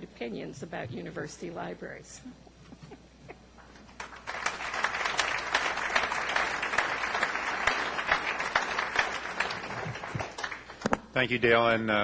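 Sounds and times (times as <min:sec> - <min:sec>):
audience applauding: 0:03.9 - 0:10.9.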